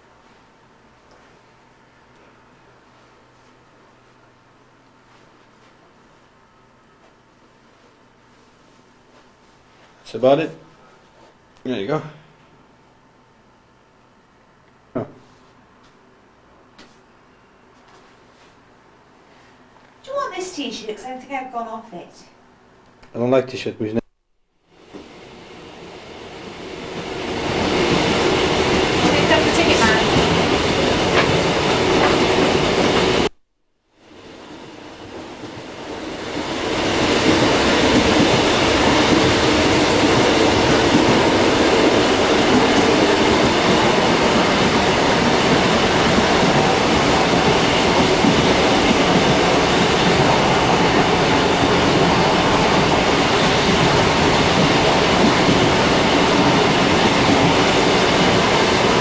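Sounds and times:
passenger train running on track: 24.8 - 33.3, 34.1 - 59.0.

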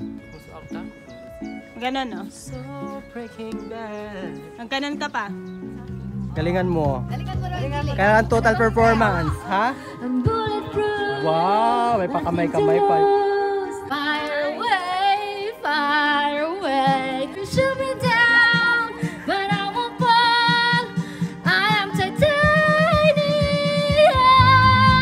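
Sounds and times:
backing track with low beat: 0.0 - 25.0
woman singing karaoke: 2.2 - 5.0, 9.4 - 25.0.

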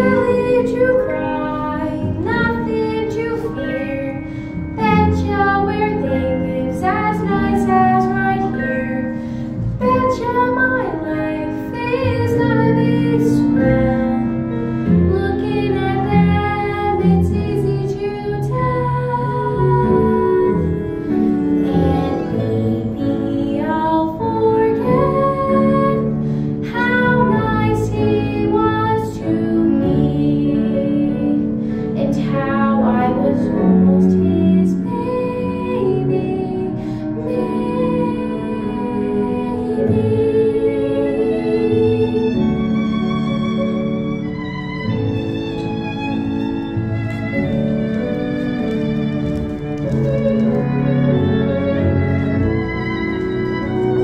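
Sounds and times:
girl singing: 0.0 - 4.2, 4.8 - 9.1, 9.8 - 14.4, 15.0 - 31.4, 32.0 - 42.5
instrumental accompaniment: 0.0 - 54.0.

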